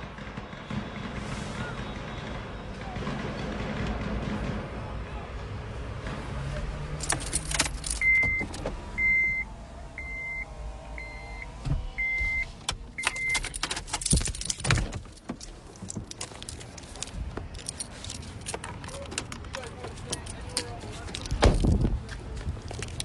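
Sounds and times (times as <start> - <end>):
car warning chime beeping: 7.9 - 13.6.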